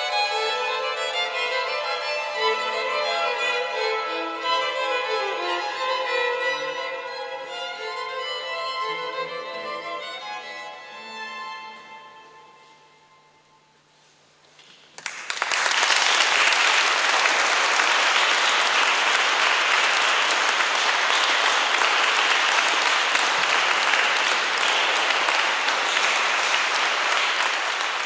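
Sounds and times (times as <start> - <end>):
string notes: 0.0 - 13.7
audience applause: 15.0 - 28.0.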